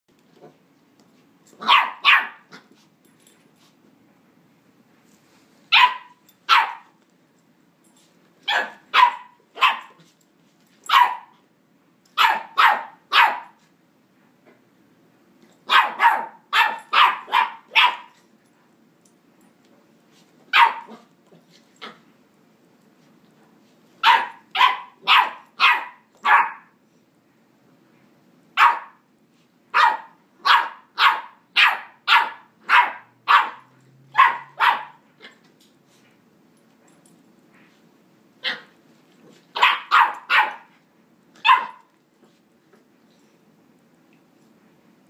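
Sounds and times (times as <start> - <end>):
puppy yapping: 1.6 - 2.6, 5.8 - 6.9, 8.5 - 10.0, 15.7 - 18.2, 20.6 - 21.1, 24.0 - 26.7, 29.8 - 35.3, 39.6 - 40.7, 41.4 - 41.9.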